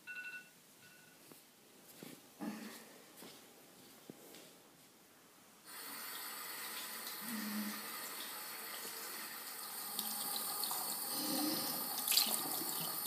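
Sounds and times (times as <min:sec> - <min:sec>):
water running into basin: 0:05.7 - 0:13.0.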